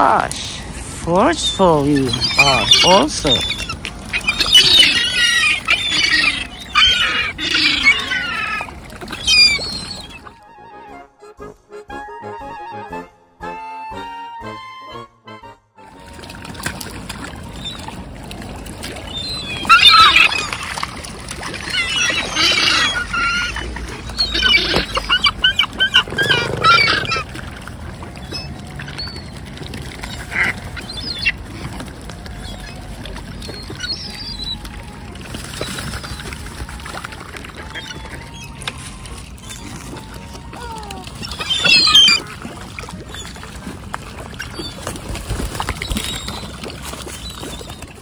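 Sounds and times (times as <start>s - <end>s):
water splashing: 0.0s - 10.5s, 15.8s - 48.0s
gulls squealing calls: 1.2s - 10.9s, 17.3s - 48.0s
wings flapping: 16.4s - 42.3s.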